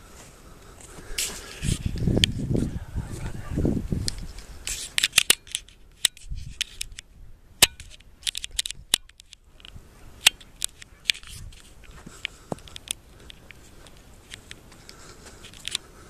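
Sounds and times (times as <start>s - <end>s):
sharp clicks and crackles: 4.0s - 15.9s.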